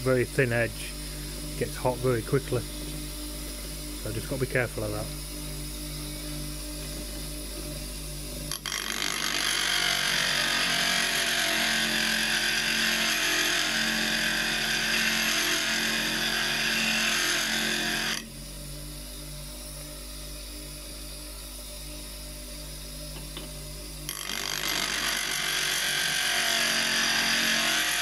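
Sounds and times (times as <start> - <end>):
bench grinder motor humming: 8.5 - 18.3, 24.1 - 28.0
chisel hissing on grinding wheel: 8.6 - 18.2, 24.1 - 28.0.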